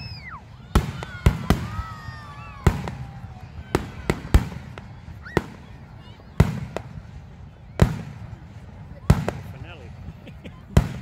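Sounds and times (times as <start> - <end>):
fireworks bursting: 0.0 - 11.0
whistling fireworks: 0.0 - 11.0.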